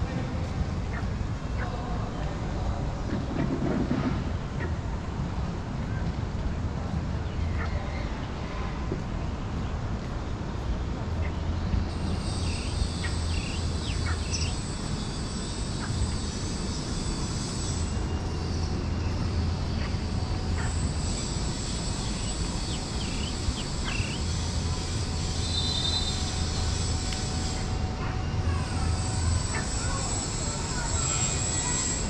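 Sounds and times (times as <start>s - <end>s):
high steady whine: 8.6s - 32.0s
bird chirps: 11.2s - 15.2s, 21.5s - 24.4s, 25.4s - 26.7s.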